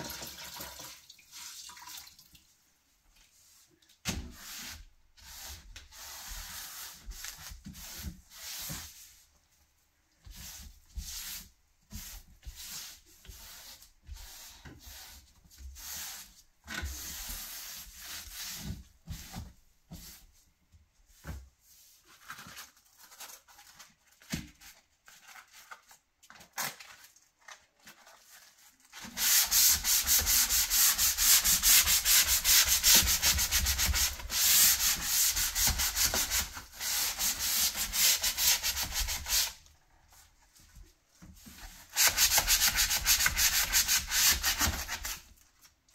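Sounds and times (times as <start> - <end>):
sanding block rubbing wood: 29.1 - 39.6, 41.9 - 45.2.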